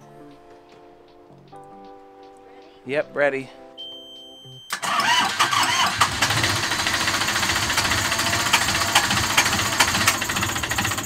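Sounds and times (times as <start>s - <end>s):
diesel engine idling with clatter: 6.0s - 11.0s.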